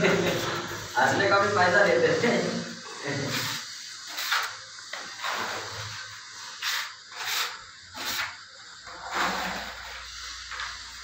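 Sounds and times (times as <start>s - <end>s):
putty blade scraping wall: 6.6s - 10.1s.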